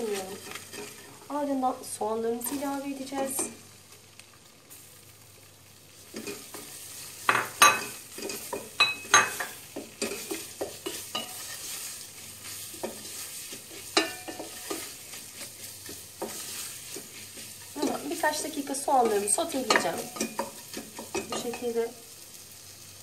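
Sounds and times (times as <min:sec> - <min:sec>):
wooden spoon scraping a pot: 0:00.0 - 0:01.3, 0:06.0 - 0:21.8
onions sizzling in a pot: 0:00.0 - 0:23.0.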